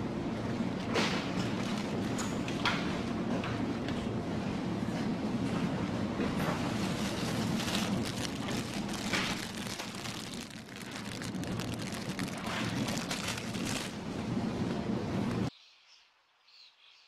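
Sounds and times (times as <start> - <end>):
steady low rumble: 0.0 - 15.5
crackling rustles: 0.7 - 3.1, 6.2 - 14.4.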